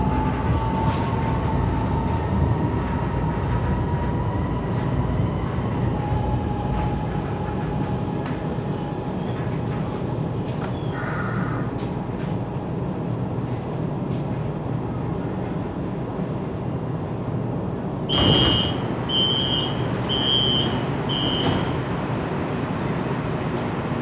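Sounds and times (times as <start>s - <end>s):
train doors opening rush: 0.0s - 12.8s, 17.5s - 24.0s
train hum at platform: 0.0s - 24.0s
high warning beeps: 10.0s - 10.4s, 11.1s - 24.0s.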